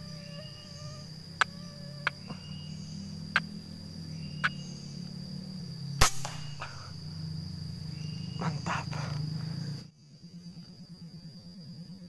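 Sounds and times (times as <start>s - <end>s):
high insect drone: 0.0s - 12.0s
air rifle shot: 6.0s - 6.8s.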